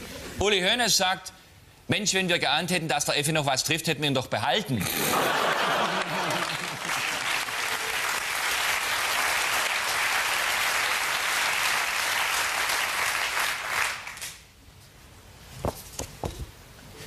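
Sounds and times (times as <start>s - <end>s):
audience applauding: 5.2s - 14.4s.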